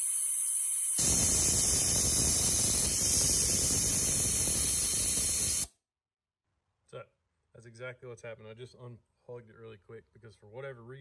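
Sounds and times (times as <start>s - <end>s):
compressed air hissing out: 0.0s - 5.7s.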